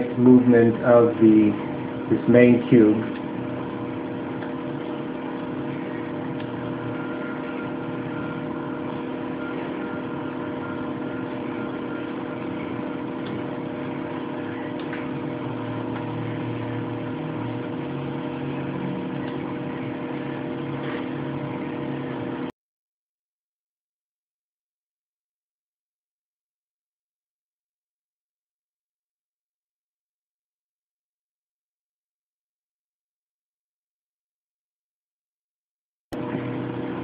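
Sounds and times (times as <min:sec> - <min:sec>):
machine-like hum with held tones: 0:00.0 - 0:22.5, 0:36.2 - 0:37.0.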